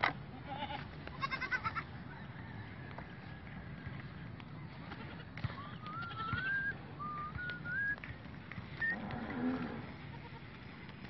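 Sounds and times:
goat bleating: 0:00.3 - 0:01.9, 0:10.0 - 0:10.5.

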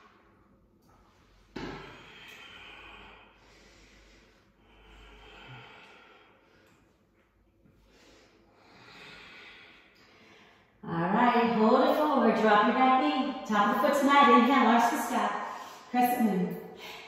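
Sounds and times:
quiet breathing close up: 0:01.7 - 0:07.1, 0:07.8 - 0:10.8.

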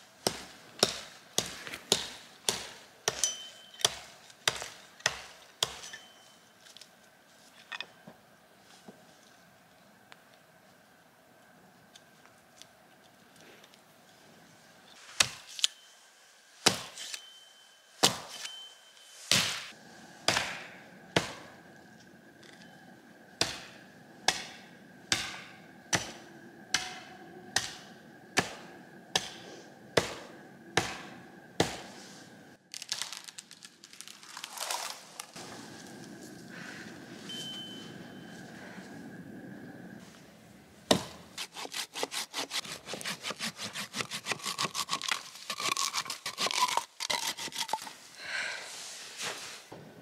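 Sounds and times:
axe chopping wood: 0:00.3 - 0:03.2, 0:23.4 - 0:27.0, 0:30.8 - 0:31.8, 0:40.9 - 0:44.9
rustling and scraping: 0:31.9 - 0:38.9, 0:48.7 - 0:49.8.

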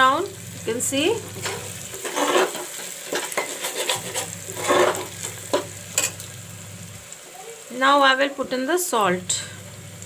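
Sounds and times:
onions sizzling in oil: 0:00.0 - 0:10.0
metal spatula scraping: 0:01.3 - 0:06.3.

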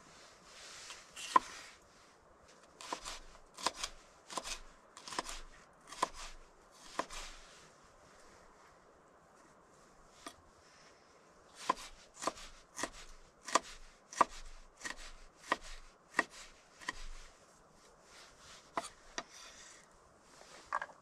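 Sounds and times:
knife chopping on wooden board: 0:11.6 - 0:17.1, 0:18.7 - 0:19.4.

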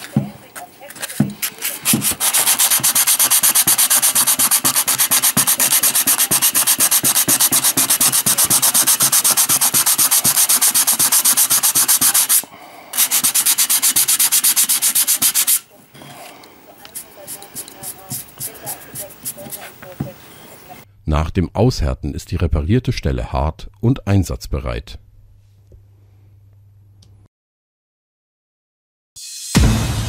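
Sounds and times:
sandpaper rubbing on metal: 0:01.4 - 0:15.7, 0:16.9 - 0:19.8.

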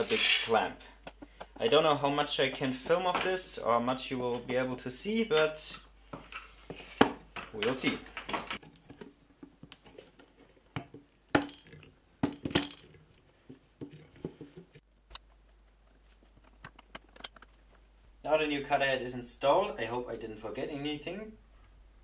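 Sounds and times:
light metallic clicks and clinks: 0:06.2 - 0:06.8, 0:17.0 - 0:17.6.

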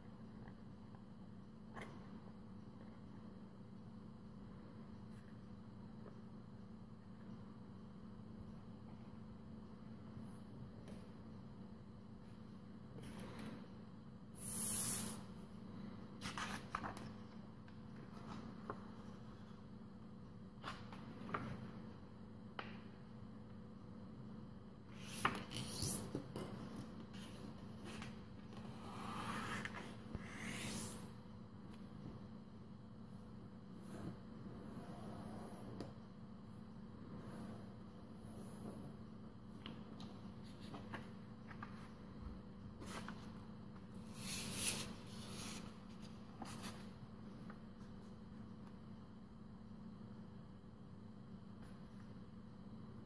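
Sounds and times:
steady low hum: 0:00.0 - 0:53.0
paper rustling and crinkling: 0:16.2 - 0:17.3.

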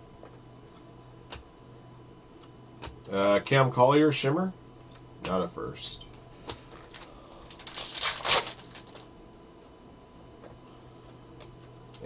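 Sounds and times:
card packs rustling: 0:06.4 - 0:09.1.

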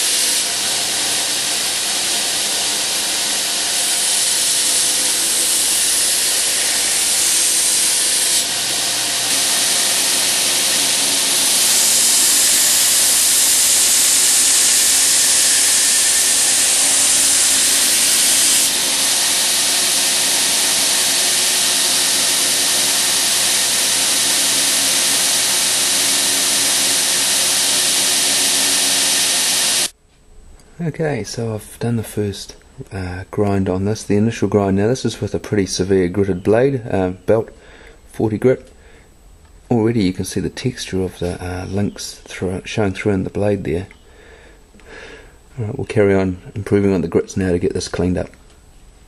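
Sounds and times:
belt grinder grinding steel: 0:00.0 - 0:29.9
motor humming: 0:00.0 - 0:29.9.

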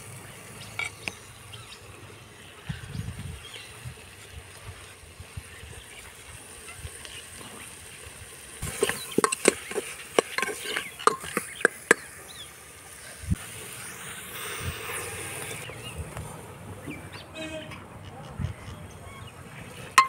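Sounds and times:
metal clinks and scrapes: 0:08.6 - 0:11.5
metal spatula stirring in pot: 0:08.6 - 0:12.1.

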